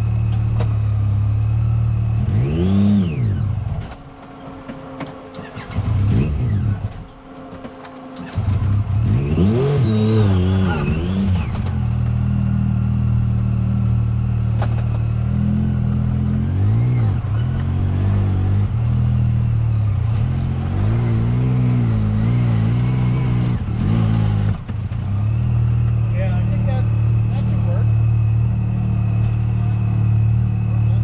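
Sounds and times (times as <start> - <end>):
vehicle engine idling: 11.0 - 20.1, 24.5 - 31.0.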